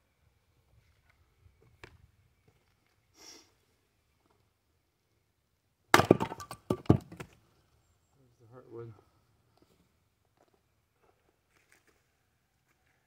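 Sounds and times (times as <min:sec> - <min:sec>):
axe splitting log: 0:05.9 - 0:07.4
split wood pieces clattering: 0:06.0 - 0:07.4.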